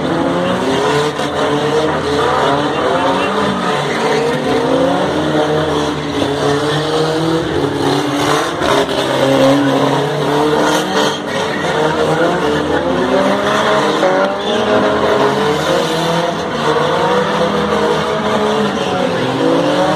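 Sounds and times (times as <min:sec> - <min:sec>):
truck engines revving: 0:00.0 - 0:19.9
tyres squealing on concrete: 0:02.0 - 0:05.0.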